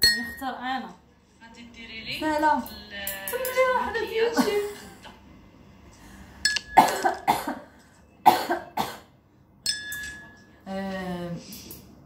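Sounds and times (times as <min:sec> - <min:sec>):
woman coughing: 0:06.8 - 0:09.1.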